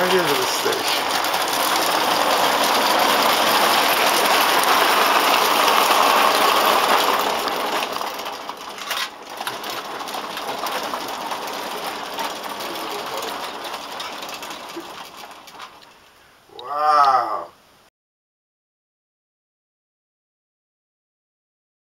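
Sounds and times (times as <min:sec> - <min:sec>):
clockwork gears whirring: 0:00.0 - 0:16.0
train wheels rattling on rails: 0:00.0 - 0:16.0.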